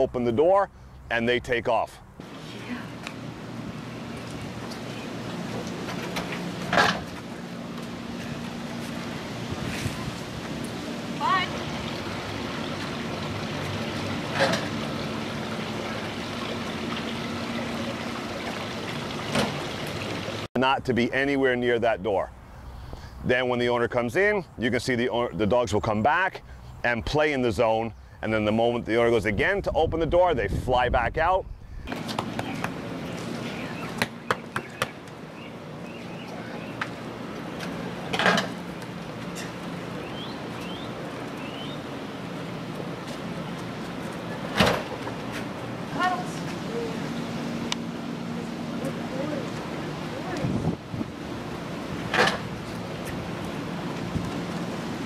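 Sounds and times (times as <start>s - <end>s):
rushing outdoor noise: 0.0s - 55.0s
bird chirps: 32.4s - 36.8s, 40.0s - 41.9s.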